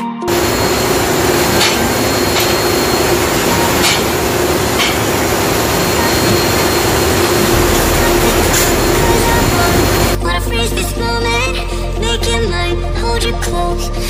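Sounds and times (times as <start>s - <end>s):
heavy machinery roar and hiss: 0.0s - 10.2s
constant hum: 0.2s - 10.2s.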